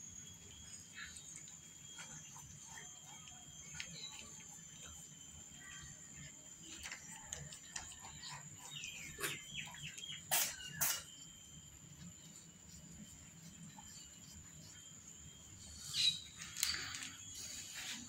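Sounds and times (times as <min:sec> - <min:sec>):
high-pitched insect drone: 0:00.0 - 0:18.0
small birds chirping: 0:06.7 - 0:12.3, 0:14.1 - 0:17.4.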